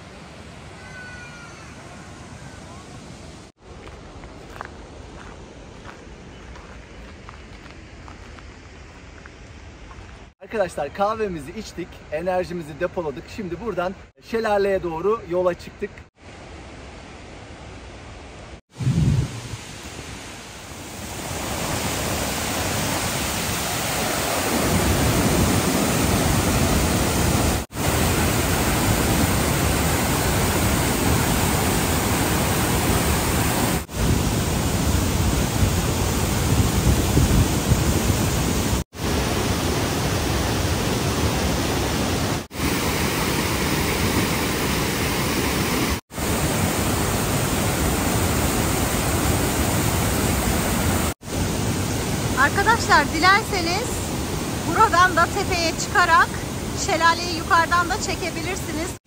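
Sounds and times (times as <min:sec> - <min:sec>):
waterfall rushing: 0:00.0 - 0:03.6, 0:19.2 - 0:59.0.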